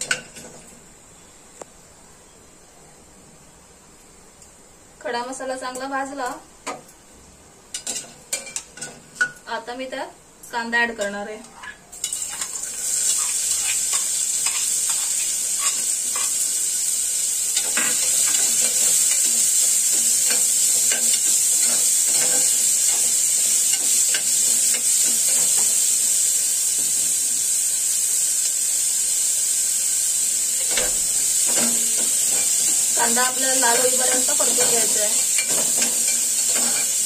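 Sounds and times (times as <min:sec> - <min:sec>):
onion sizzling in hot fat: 0:05.0 - 0:37.0
steel spoon scraping a pot: 0:11.6 - 0:16.4.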